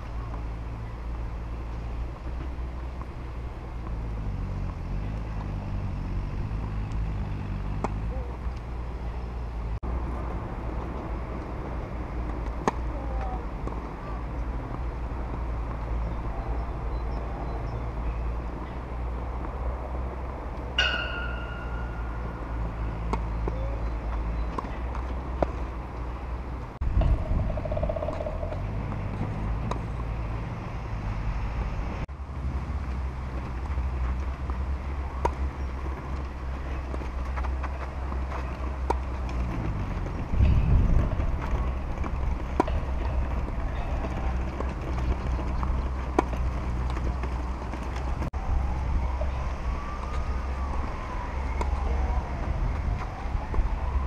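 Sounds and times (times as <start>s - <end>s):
tennis ball struck by racquets: 7.6s - 8.1s, 12.4s - 13.8s, 20.7s - 23.6s, 42.0s - 43.3s
wind rumble on microphone: 26.5s - 54.0s.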